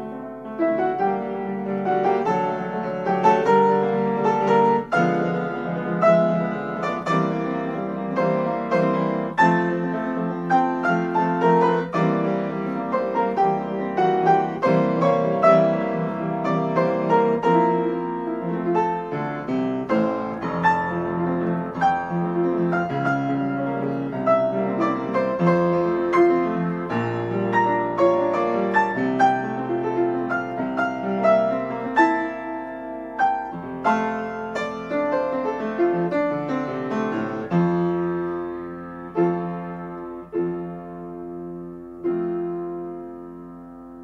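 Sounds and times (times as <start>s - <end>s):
solo piano playing: 0.0s - 44.0s.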